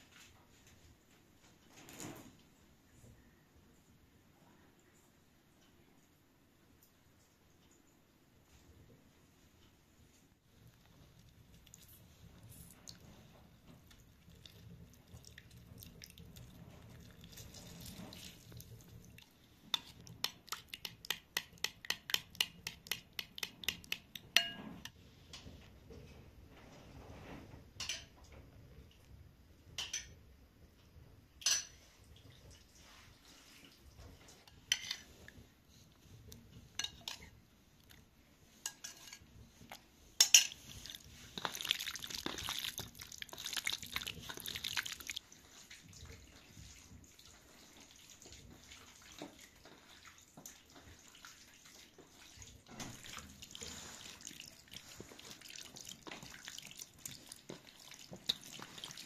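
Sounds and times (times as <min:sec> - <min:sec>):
hands kneading wet chicken: 0:10.7 - 0:24.4, 0:40.6 - 0:59.0
spoon clinking against bowl: 0:23.7 - 0:24.7.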